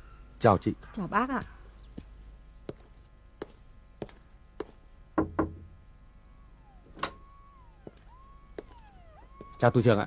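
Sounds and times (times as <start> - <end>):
knocking on door: 5.2 - 5.7.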